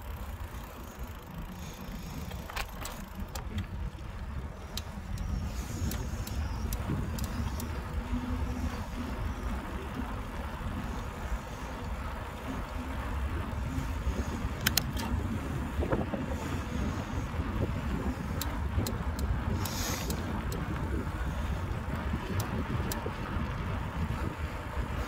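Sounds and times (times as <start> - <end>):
light clicks and rattles: 0.0 - 9.0, 14.0 - 23.8
wind rumbling on microphone: 0.0 - 25.0.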